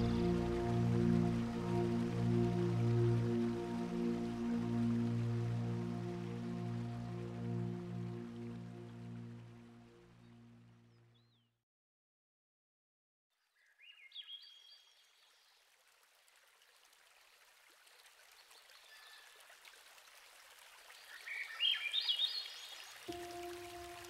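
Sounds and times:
flowing river water: 0.0 - 10.9, 14.6 - 24.0
songbird singing: 13.6 - 15.4, 21.0 - 24.0.

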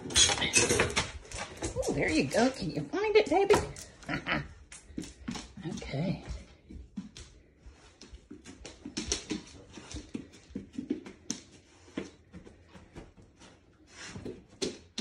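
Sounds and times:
dog paws clicking on hardwood floor: 0.0 - 15.0.

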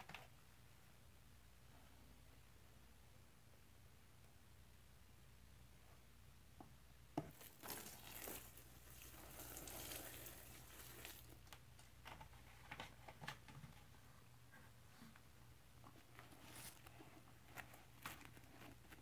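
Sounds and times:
liquid trickling into bucket: 7.4 - 11.4.

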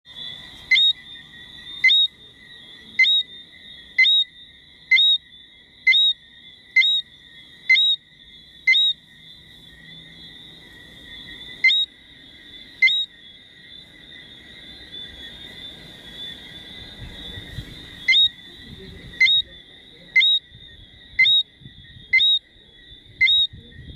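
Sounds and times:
distant frog chorus: 0.1 - 23.9
frog calling whistle: 0.2 - 2.3, 2.9 - 9.0, 11.1 - 12.0, 12.6 - 13.3, 18.0 - 23.9.

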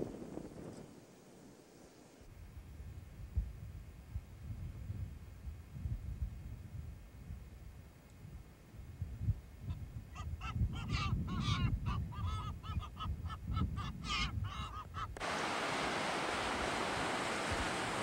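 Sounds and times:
surf washing on beach: 15.2 - 18.0.

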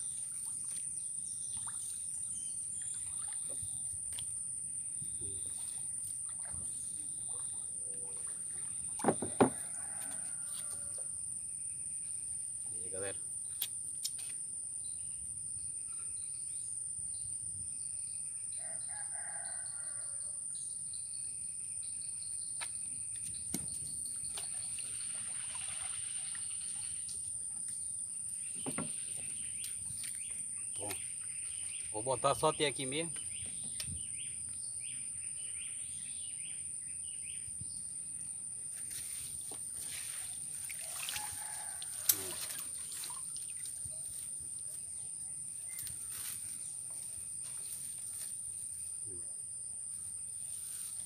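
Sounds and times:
sharp knocks on wooden canoe: 9.0 - 10.1, 28.5 - 29.4.

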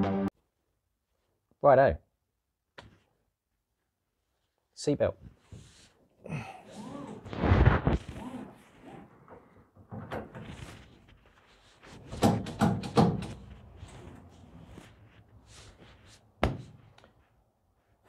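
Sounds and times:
sharp thunk: 16.4 - 16.7.

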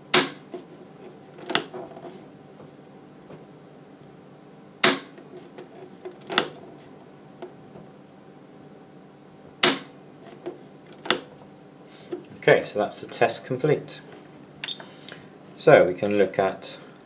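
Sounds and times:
faint steady hum: 0.0 - 17.0
circuit breaker clicks: 9.6 - 9.9.

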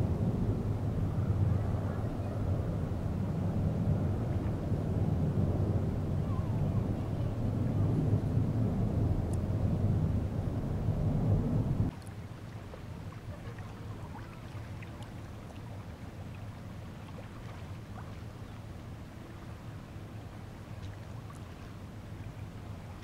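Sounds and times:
loud low rumble: 0.0 - 11.9
steady low rumble: 0.0 - 23.0
faint drips and ticks: 11.9 - 18.9, 20.8 - 22.5
small waves lapping and splashing: 11.9 - 23.0.

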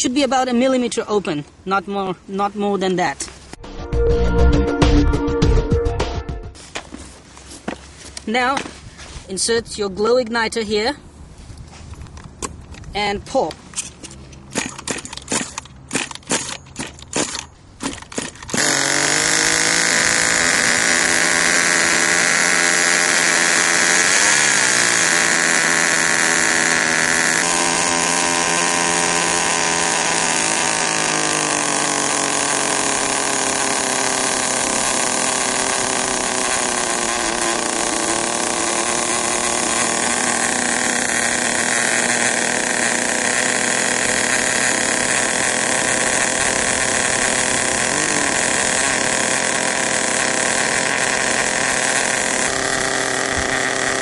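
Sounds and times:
recoil starter pulls: 11.9 - 54.0
small engine buzzing: 13.9 - 54.0.

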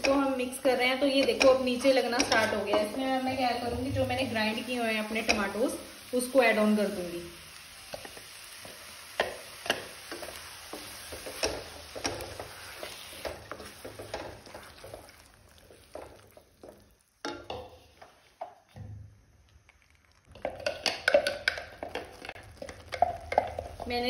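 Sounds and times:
food frying hiss: 0.0 - 24.0
spatula scraping a pan: 7.9 - 18.6.

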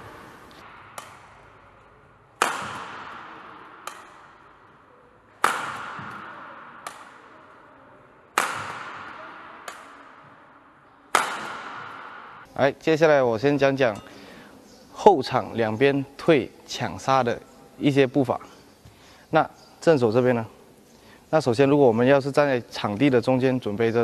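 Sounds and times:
badminton smashes echoing: 0.0 - 12.6.

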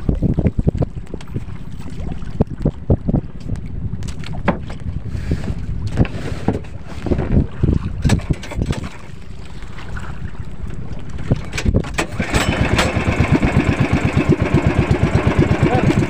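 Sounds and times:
water splashing against boat: 0.0 - 16.0
wind buffeting microphone: 0.0 - 16.0.

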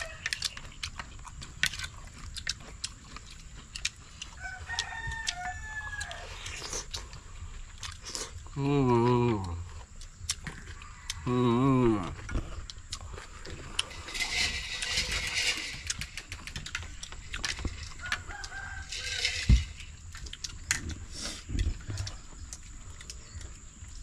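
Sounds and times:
drawn-out animal calls: 0.0 - 1.1.

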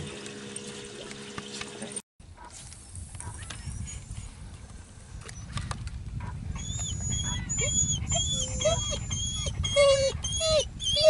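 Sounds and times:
dog whining: 6.6 - 11.0.

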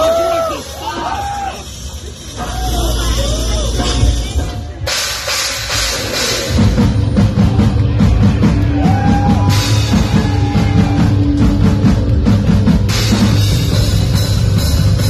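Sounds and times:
cymbals crashing: 0.0 - 15.0
nu-metal band playing loudly: 0.0 - 15.0.

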